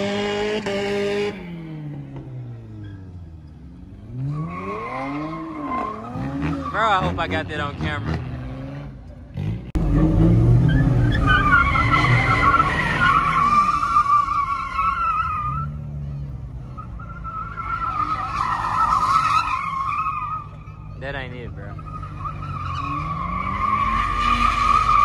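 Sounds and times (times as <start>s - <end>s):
tires squealing: 2.4s - 25.0s.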